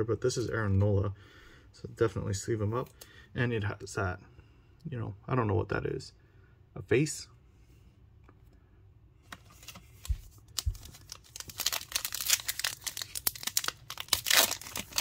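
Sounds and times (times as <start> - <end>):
wrapper tearing and crinkling: 10.0 - 15.0.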